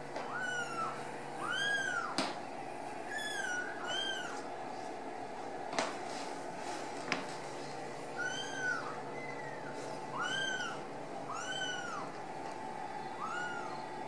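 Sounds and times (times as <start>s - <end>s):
kittens meowing: 0.2s - 2.2s, 3.1s - 4.4s, 8.2s - 12.1s, 13.2s - 13.8s.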